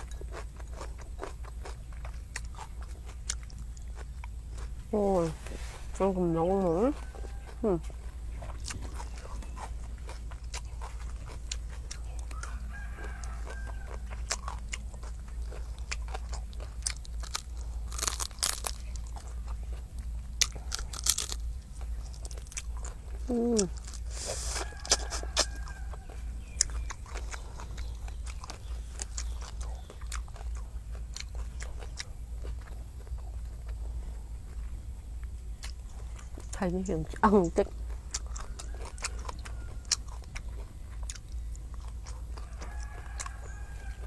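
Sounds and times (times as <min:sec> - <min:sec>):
crunching and chewing food: 0:00.0 - 0:44.0
chicken clucking: 0:24.1 - 0:27.9.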